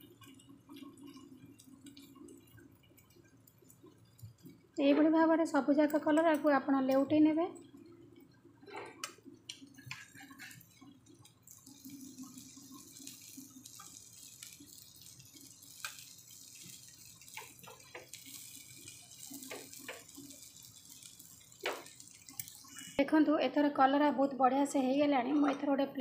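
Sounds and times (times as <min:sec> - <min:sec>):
frying sizzle: 0:00.0 - 0:26.0
metal spatula scraping pan: 0:09.8 - 0:10.7.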